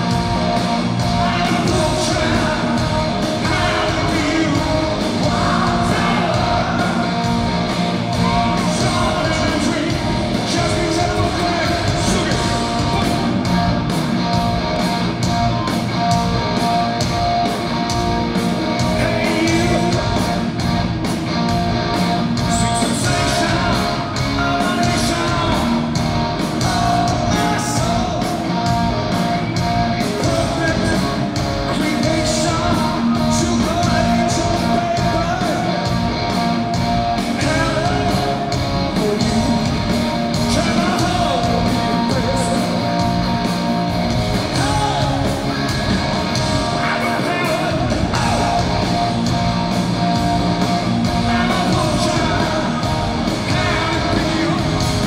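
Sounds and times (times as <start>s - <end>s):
rock band playing live: 0.0s - 55.0s
man singing lead vocal: 1.0s - 13.3s, 18.8s - 20.4s, 22.4s - 25.9s, 26.5s - 28.5s, 30.0s - 35.9s, 37.2s - 42.8s, 44.4s - 45.5s, 46.6s - 49.0s, 51.1s - 55.0s.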